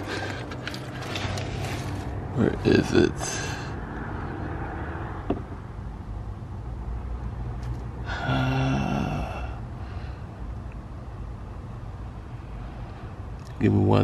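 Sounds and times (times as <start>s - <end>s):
man sighing: 8.0s - 10.0s.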